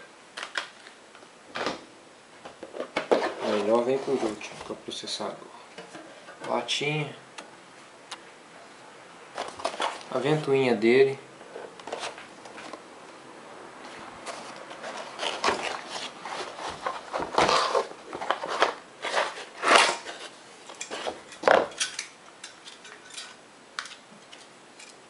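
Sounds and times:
packaging scrapes and rustles: 0:03.1 - 0:04.7, 0:14.2 - 0:21.2.

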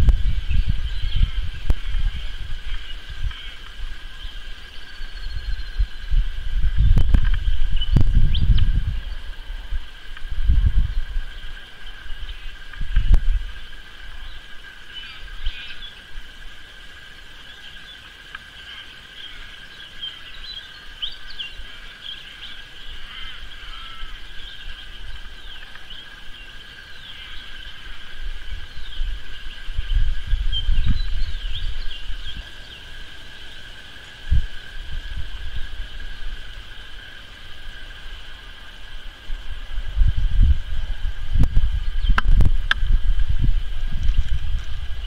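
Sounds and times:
low rumble on microphone: 0:00.0 - 0:16.5, 0:27.0 - 0:45.0
birds chirping: 0:00.0 - 0:40.2, 0:40.8 - 0:45.0.

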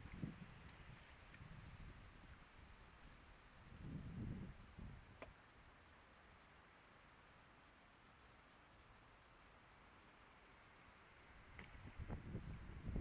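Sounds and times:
high-pitched insect drone: 0:00.0 - 0:13.0
faint tick: 0:05.2 - 0:05.4.

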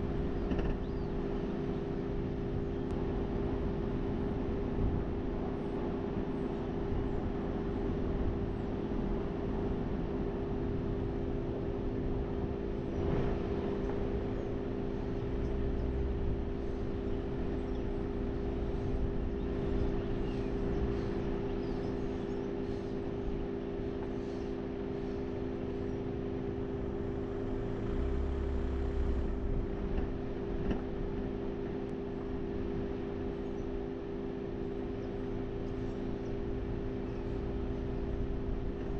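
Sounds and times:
engine droning: 0:00.0 - 0:38.9
deep rumble: 0:06.9 - 0:33.3.

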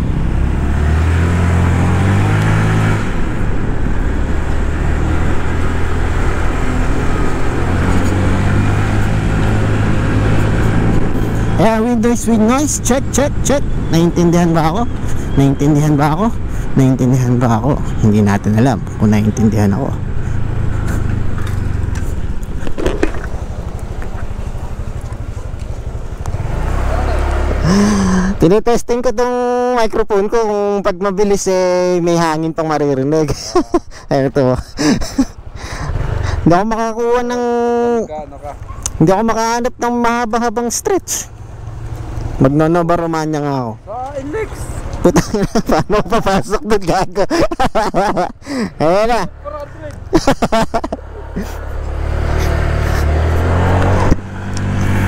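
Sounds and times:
scooter engine running: 0:20.3 - 0:28.3.

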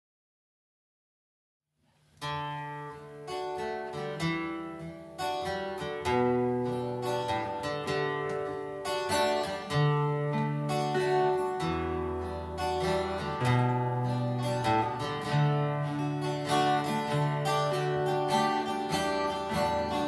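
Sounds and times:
acoustic guitars playing blues: 0:02.2 - 0:20.0.

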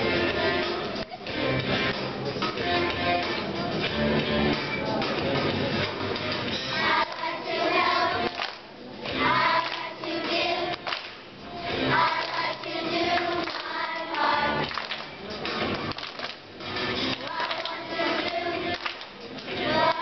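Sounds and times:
children's choir singing: 0:06.7 - 0:15.0, 0:17.0 - 0:20.0.

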